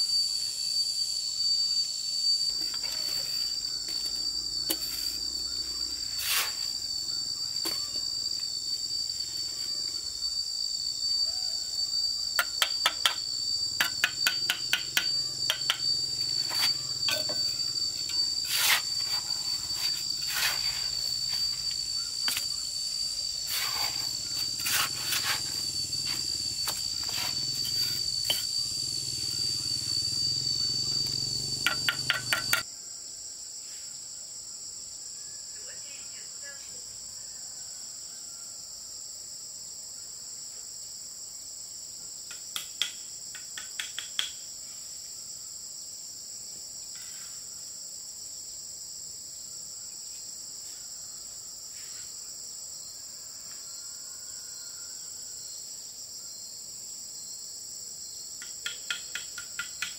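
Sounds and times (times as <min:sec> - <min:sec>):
high-pitched insect drone: 0:00.0 - 0:59.9
hammer and trowel tapping bricks: 0:13.8 - 0:15.8, 0:31.6 - 0:32.6, 0:42.3 - 0:44.4, 0:58.4 - 0:59.9.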